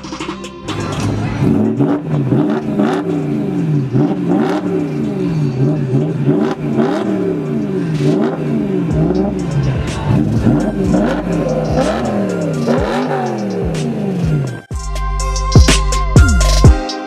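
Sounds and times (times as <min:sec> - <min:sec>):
car engine revving: 0:00.2 - 0:14.7.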